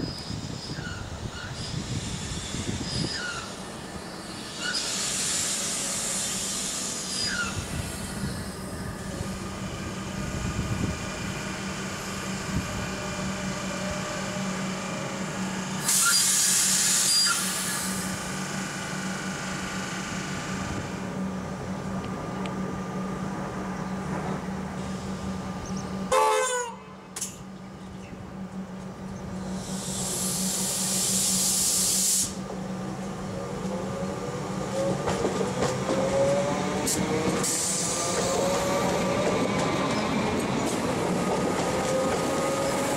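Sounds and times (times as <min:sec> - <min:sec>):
electric train humming: 0:00.0 - 0:42.9
loud hiss bursts: 0:04.2 - 0:08.0, 0:15.8 - 0:18.3, 0:29.5 - 0:32.5.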